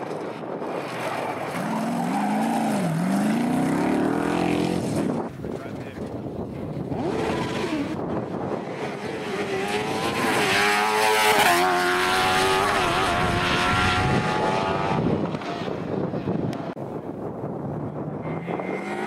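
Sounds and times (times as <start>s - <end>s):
racing car passing at full throttle: 6.9s - 16.0s.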